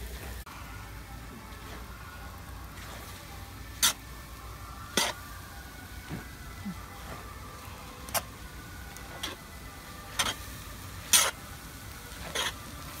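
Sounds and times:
metal spatula scraping pan: 0:04.9 - 0:05.2, 0:11.1 - 0:11.4, 0:12.2 - 0:12.6.

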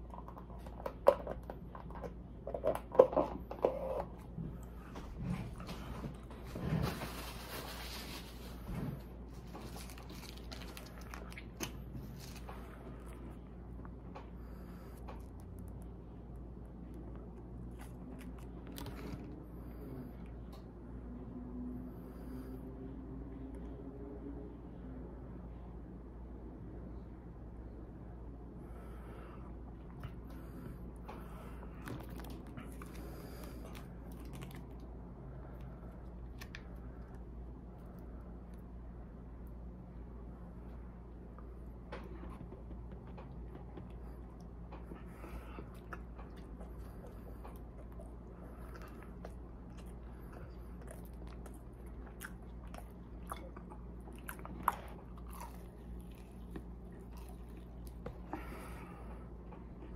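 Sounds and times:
food packaging rustling: 0:06.4 - 0:12.8.

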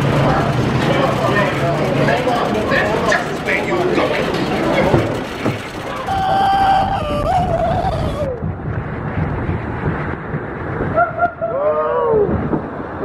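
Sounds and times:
man screaming: 0:05.9 - 0:08.4.

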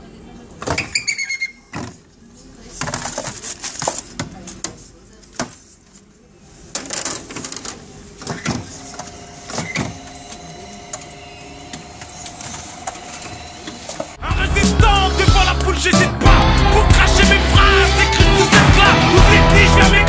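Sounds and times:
loud music with a beat: 0:14.2 - 0:20.0.

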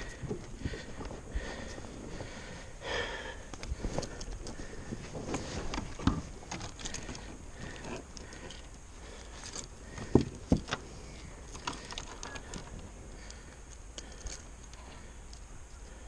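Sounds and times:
fishing gear clicking on kayak: 0:03.4 - 0:16.0.

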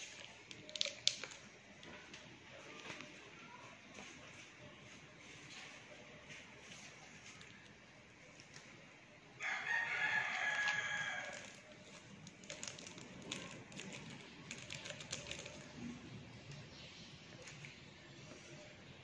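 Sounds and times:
plastic sachet crinkling: 0:00.0 - 0:03.1, 0:09.8 - 0:18.7
rooster crowing: 0:09.4 - 0:11.6.

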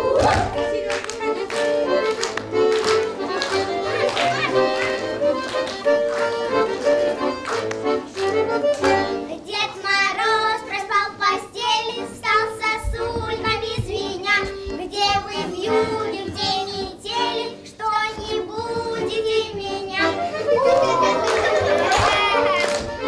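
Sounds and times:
instrumental accompaniment: 0:00.0 - 0:23.0
girl singing folk song: 0:09.0 - 0:21.2.

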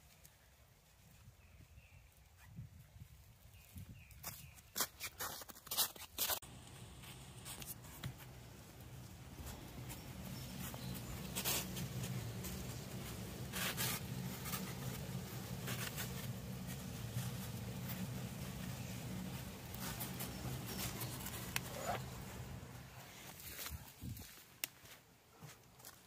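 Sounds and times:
sharp crackles: 0:05.0 - 0:23.6
sap boiling and bubbling: 0:06.4 - 0:23.3.

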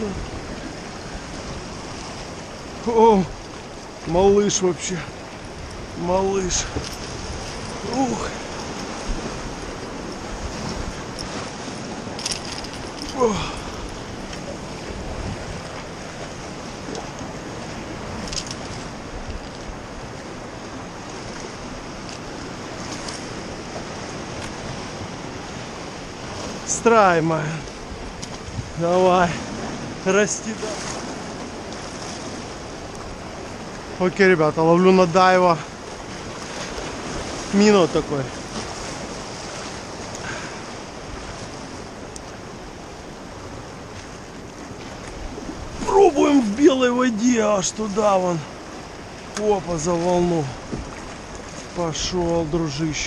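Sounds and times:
wind on microphone: 0:00.0 - 0:26.7, 0:27.6 - 0:34.0
ocean surf breaking on rocks: 0:00.0 - 0:53.0.

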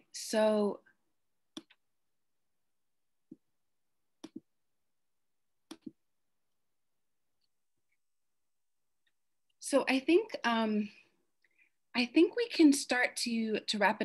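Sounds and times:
computer mouse clicks: 0:01.5 - 0:01.8, 0:04.2 - 0:04.5, 0:05.7 - 0:06.0.

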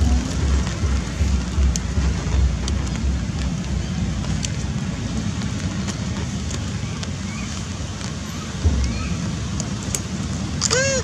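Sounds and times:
wind rumbling on microphone: 0:00.0 - 0:11.0
monkey cry: 0:10.6 - 0:11.0.

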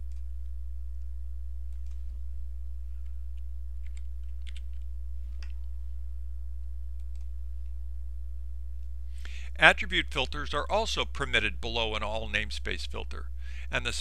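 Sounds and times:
low electrical hum: 0:00.0 - 0:14.0
computer keystrokes: 0:01.7 - 0:02.0, 0:03.8 - 0:05.6, 0:07.0 - 0:07.3
mouse clicks: 0:07.0 - 0:07.8.

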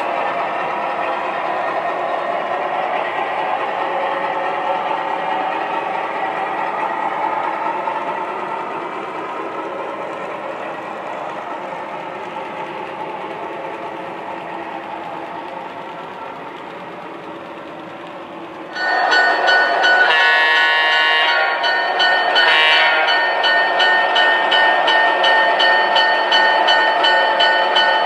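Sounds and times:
model train wheels rumbling: 0:00.0 - 0:28.0
model locomotive horn: 0:20.1 - 0:21.6, 0:22.4 - 0:23.1.

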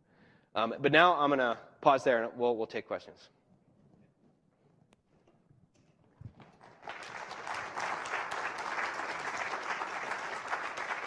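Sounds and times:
audience applauding: 0:06.4 - 0:11.0.

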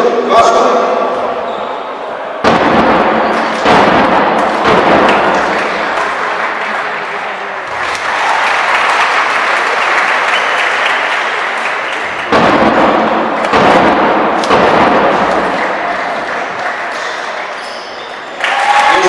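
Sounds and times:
low thuds: 0:02.4 - 0:05.9, 0:12.3 - 0:15.8
crowd clapping and cheering: 0:02.8 - 0:19.0.

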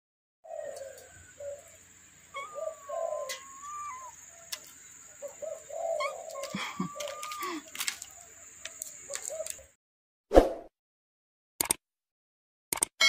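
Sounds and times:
doves cooing: 0:00.4 - 0:09.7.

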